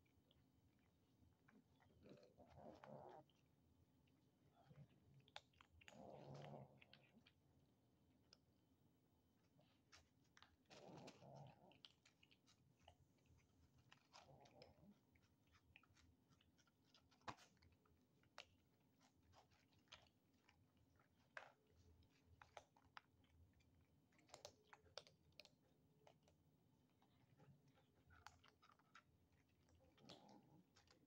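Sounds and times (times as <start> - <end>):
kittens chewing dry kibble: 0.0 - 31.0.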